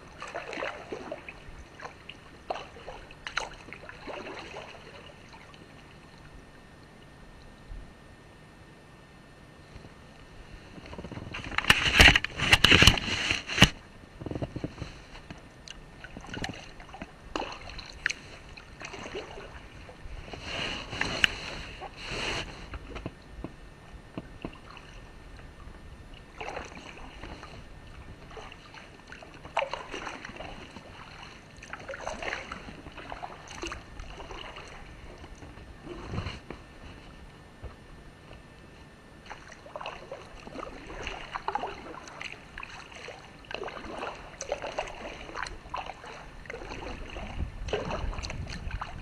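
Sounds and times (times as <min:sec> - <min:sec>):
paddle splashing in water: 0:00.0 - 0:06.0, 0:14.7 - 0:23.0, 0:26.1 - 0:36.6, 0:39.2 - 0:49.0.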